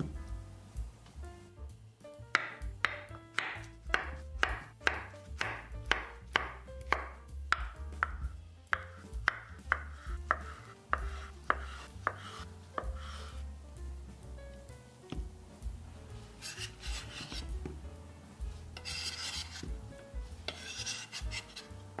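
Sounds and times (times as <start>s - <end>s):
knife slicing on wooden board: 16.4s - 17.5s, 18.8s - 19.8s, 20.5s - 21.7s.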